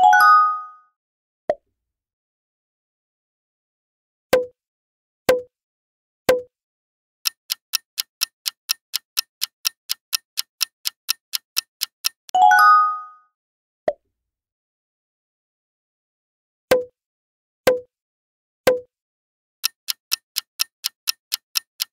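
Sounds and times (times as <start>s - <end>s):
clock ticking: 7.2s - 12.4s, 19.6s - 21.9s.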